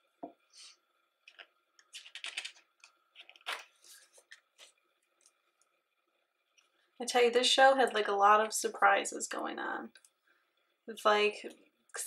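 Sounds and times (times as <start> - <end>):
book pages turning: 3.2 - 4.8.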